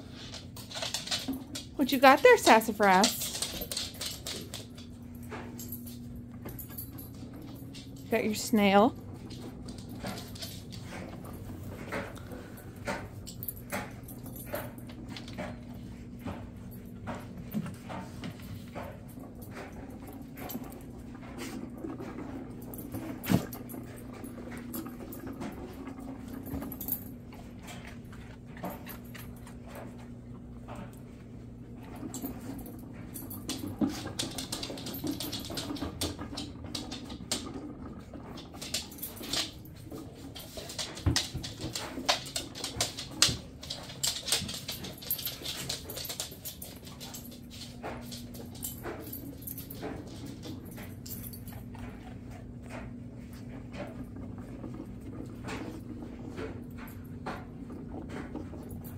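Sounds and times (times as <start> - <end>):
dog claws clicking on wooden floor: 0.0 - 8.1, 33.2 - 51.8.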